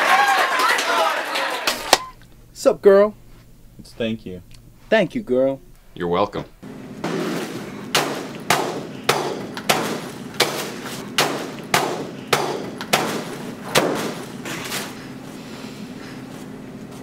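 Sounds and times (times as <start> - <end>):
stick whacking paper pinata: 7.1 - 14.9.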